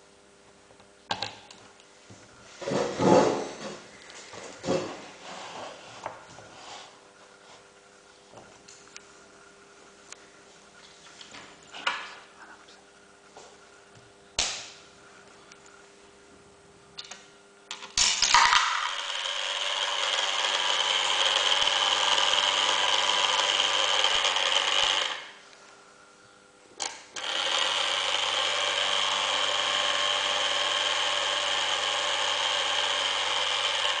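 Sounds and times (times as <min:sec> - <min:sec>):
small electric motor whirring: 0:18.6 - 0:25.4, 0:27.2 - 0:34.0.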